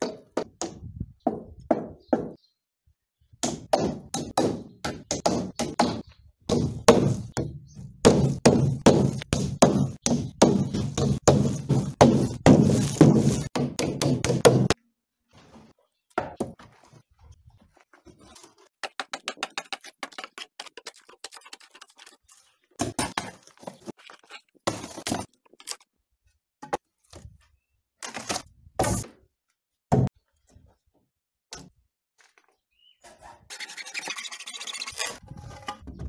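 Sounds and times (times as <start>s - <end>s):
hammer beating on wooden board: 0.0s - 2.4s, 3.4s - 14.8s.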